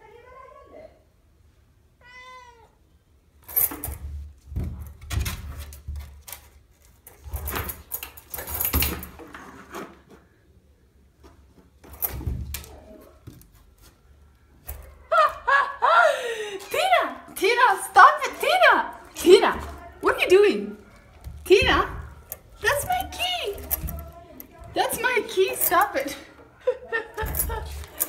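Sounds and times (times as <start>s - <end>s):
cat meowing: 2.0s - 2.8s
key rattling: 6.2s - 9.2s, 18.3s - 26.2s, 27.1s - 28.0s.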